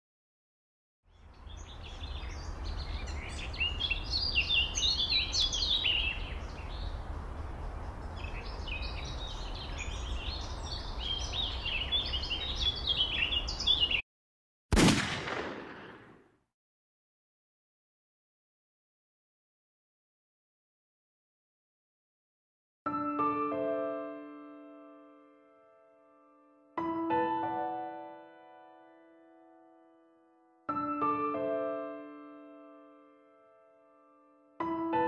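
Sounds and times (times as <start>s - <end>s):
birds chirping and singing: 1.1s - 14.0s
loud boom: 14.7s - 16.2s.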